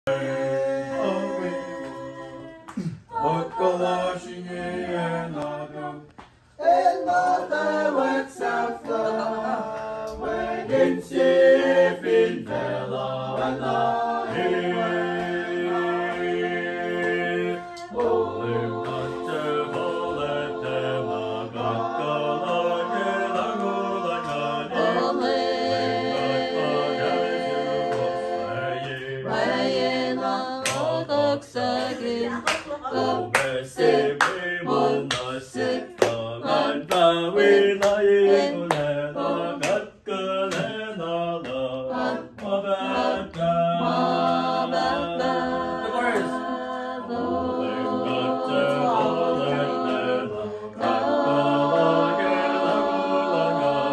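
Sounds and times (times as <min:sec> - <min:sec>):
voices singing in harmony: 0:00.0 - 0:53.9
sharp claps or beats: 0:13.3 - 0:20.7, 0:22.4 - 0:25.3, 0:30.6 - 0:31.0, 0:33.3 - 0:37.2, 0:37.8 - 0:38.1, 0:38.7 - 0:39.0, 0:39.6 - 0:41.7, 0:42.3 - 0:43.6.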